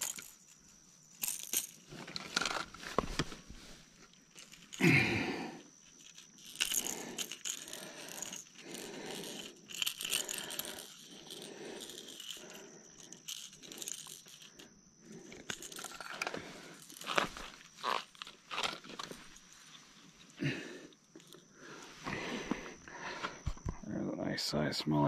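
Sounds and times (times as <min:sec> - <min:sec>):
handling rustling: 0:00.0 - 0:05.0, 0:15.2 - 0:20.4.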